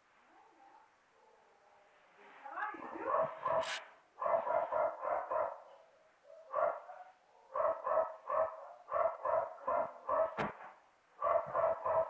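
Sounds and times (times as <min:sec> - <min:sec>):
dog barking: 0:03.0 - 0:10.6, 0:11.2 - 0:12.0.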